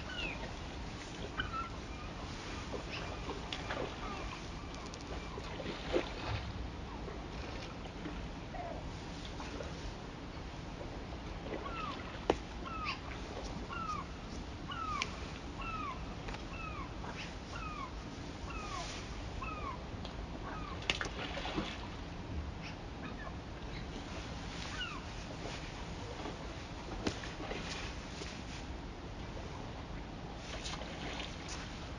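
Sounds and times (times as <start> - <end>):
bird calling: 0.0 - 0.5, 1.2 - 5.6, 11.6 - 14.1, 14.7 - 19.8, 24.6 - 25.1.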